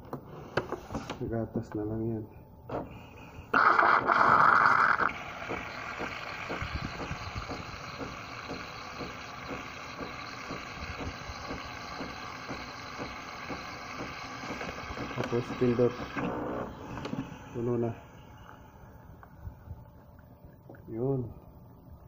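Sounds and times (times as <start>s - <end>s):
milk frother hissing and humming: 3.5s - 19.3s.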